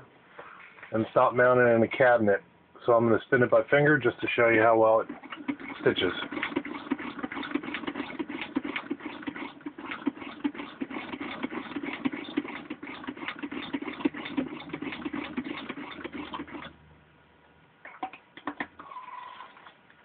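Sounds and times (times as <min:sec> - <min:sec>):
sewing machine rhythmic clatter: 0:05.0 - 0:16.7.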